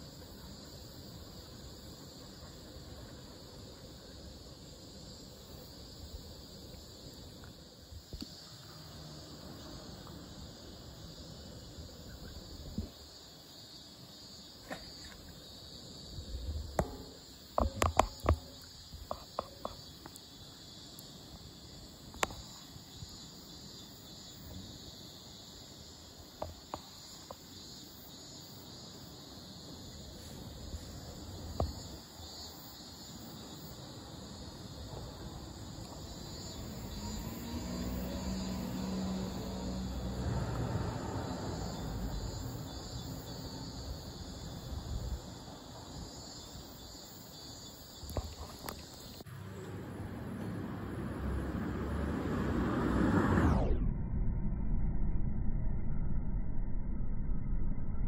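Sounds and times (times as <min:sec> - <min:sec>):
insects chirring: 0:00.0 - 0:53.8
sharp clicks and knocks: 0:16.7 - 0:20.2.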